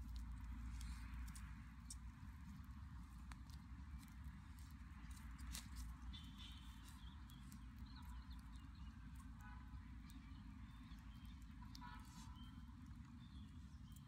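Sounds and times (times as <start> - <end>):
embers stirred with a stick: 0.0 - 12.6.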